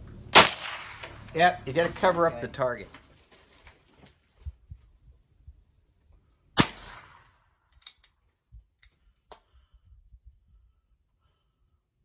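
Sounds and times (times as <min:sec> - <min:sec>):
gunshot with echo: 0:00.3 - 0:01.2, 0:06.6 - 0:07.4
faint sharp cracks: 0:00.4 - 0:01.4.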